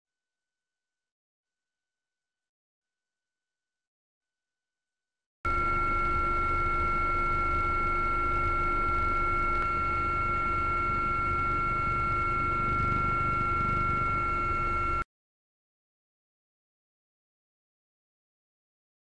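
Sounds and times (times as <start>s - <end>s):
turbine whine: 5.5s - 15.0s
rotor rumble: 8.9s - 15.0s.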